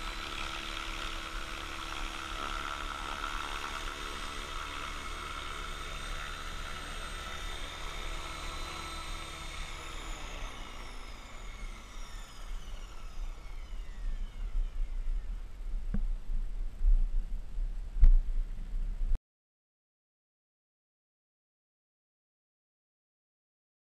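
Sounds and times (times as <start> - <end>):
drone motor and rotor whine: 0.0 - 16.7
low rumbling: 14.2 - 19.2.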